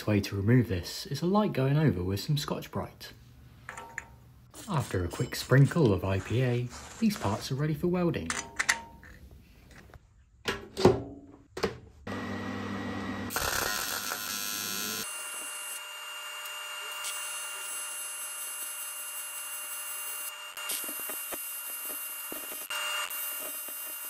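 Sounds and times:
welding arc buzzing hiss: 13.3s - 24.0s.

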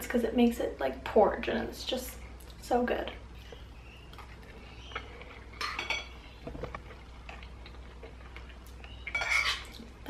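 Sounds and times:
metal spoon clinking bowl: 5.6s - 6.2s, 9.1s - 9.7s.

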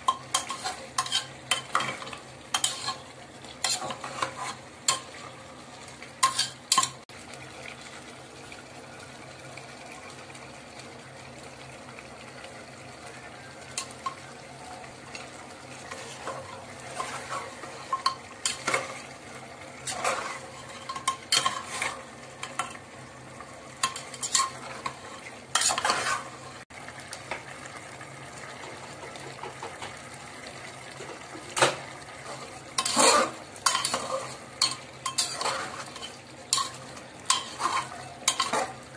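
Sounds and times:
meat sizzling: 0.0s - 38.9s
metal spoon scraping pot: 0.1s - 5.3s, 6.2s - 7.0s, 19.8s - 22.8s, 23.8s - 26.4s, 32.8s - 38.8s.

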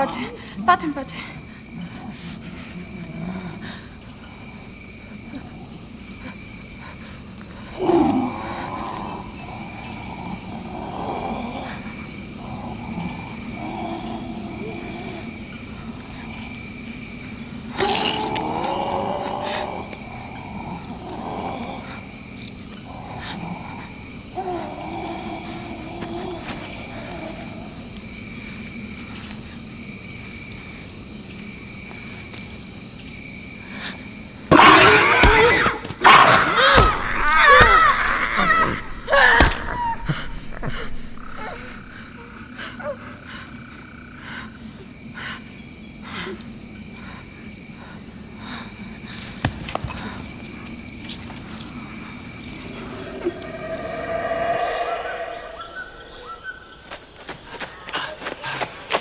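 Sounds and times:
insects chirping: 0.0s - 59.0s
wavering animal calls: 52.5s - 56.8s.

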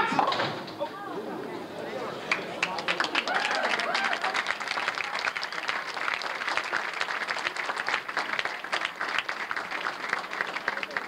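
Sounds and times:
spectators applauding: 2.2s - 11.0s.

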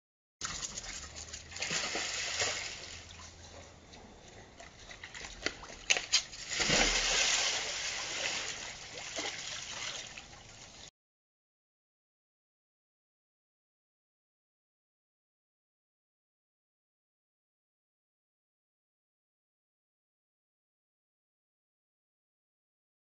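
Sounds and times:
water splashing in a hot tub: 0.4s - 3.6s, 4.6s - 10.9s.

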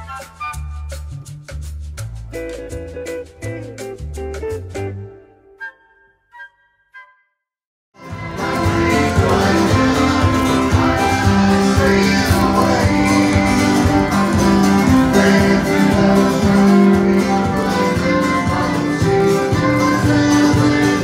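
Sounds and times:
acoustic band playing bluegrass: 0.0s - 5.2s, 8.0s - 21.0s
strummed acoustic guitar: 8.0s - 21.0s.

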